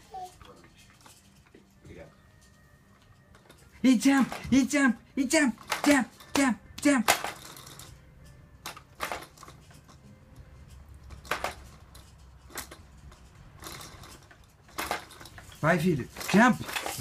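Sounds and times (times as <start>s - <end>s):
baby bouncer clicks and knocks: 3.3s - 8.0s, 8.6s - 17.0s.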